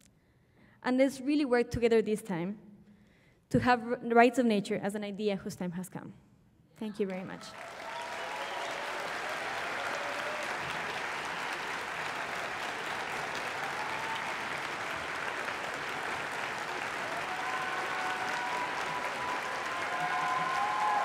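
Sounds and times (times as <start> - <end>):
large audience applauding: 7.3 - 21.0.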